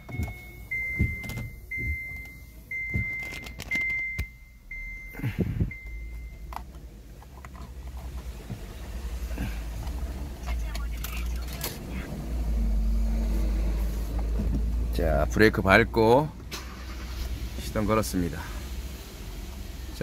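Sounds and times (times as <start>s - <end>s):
hands clicking and knocking in car: 0.0s - 4.3s
dashboard warning chime beeping: 0.0s - 6.8s
low steady hum: 0.0s - 17.5s.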